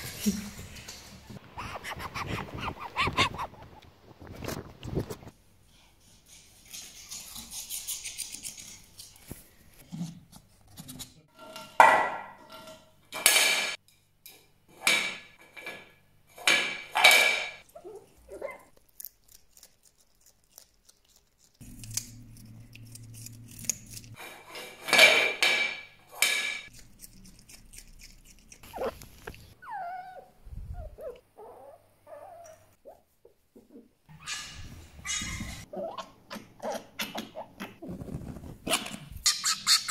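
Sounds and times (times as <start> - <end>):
fox wavering squeaks: 1.6 - 3.6, 34.1 - 36.1, 39.2 - 39.9.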